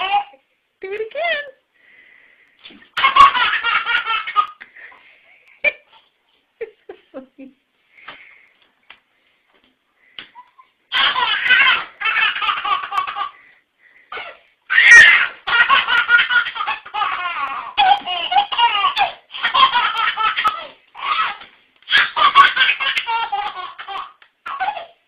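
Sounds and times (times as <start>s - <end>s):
baby laughing: 0.0s - 0.4s, 2.9s - 4.7s, 10.3s - 13.5s, 14.1s - 25.0s.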